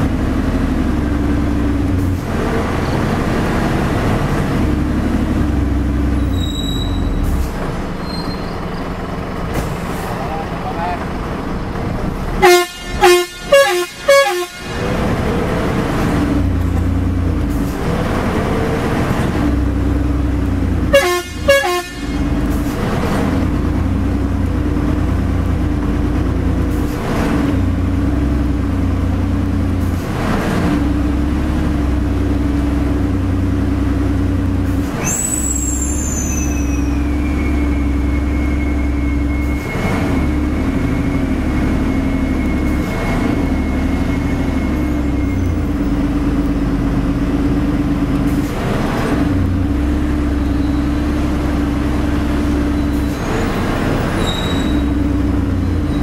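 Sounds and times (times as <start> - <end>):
diesel engine running: 0.0 - 56.0
high squeal falling in pitch: 6.2 - 7.2, 8.0 - 8.8, 35.0 - 45.8, 52.6 - 55.0
truck horn blasts: 12.3 - 15.0, 20.8 - 22.4.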